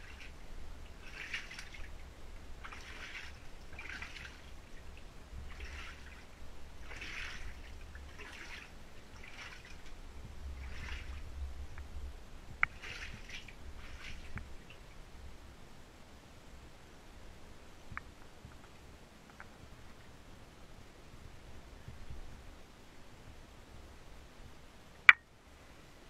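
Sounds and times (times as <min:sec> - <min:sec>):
footsteps splashing through floodwater: 0:00.0 - 0:11.4, 0:12.7 - 0:14.8
low rumble: 0:09.9 - 0:12.7.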